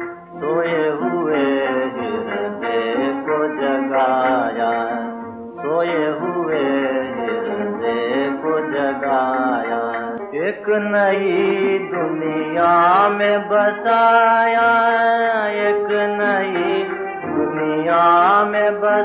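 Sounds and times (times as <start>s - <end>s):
old film song recording: 0.0s - 19.0s.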